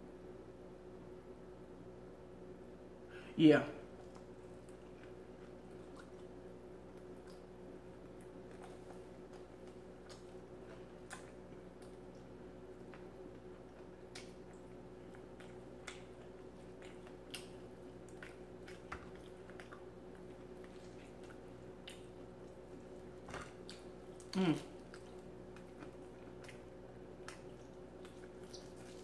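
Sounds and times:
electrical hum: 0.0s - 29.0s
quiet chewing: 3.9s - 29.0s
mouth clicks and smacks: 14.1s - 22.6s.

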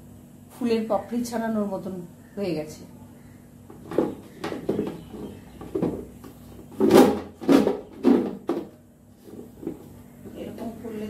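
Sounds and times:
plastic box knocking and scraping: 3.7s - 10.0s.

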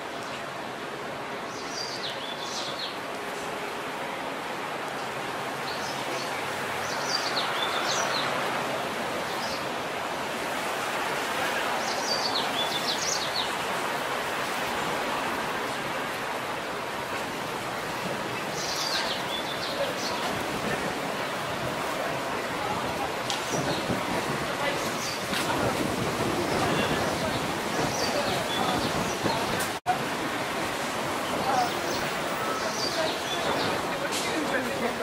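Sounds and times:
street hum: 0.0s - 35.0s
small birds chirping: 11.8s - 13.7s, 18.4s - 20.4s.

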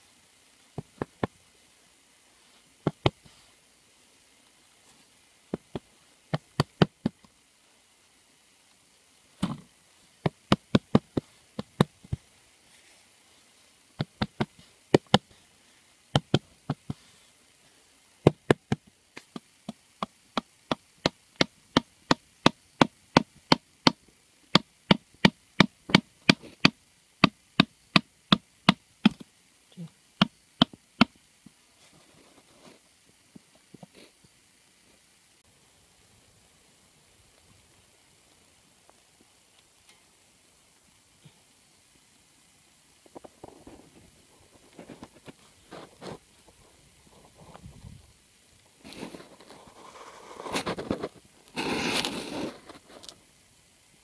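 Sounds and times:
faint soft noises: 0.0s - 10.3s, 11.0s - 18.2s, 31.4s - 53.4s.

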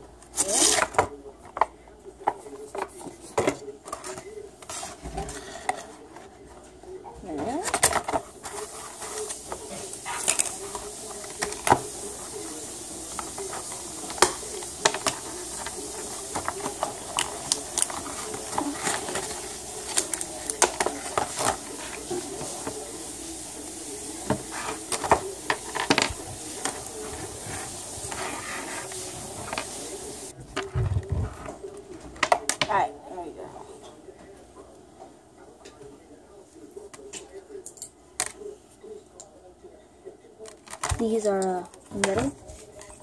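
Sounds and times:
plastic packaging clicking and crackling: 7.6s - 22.9s.

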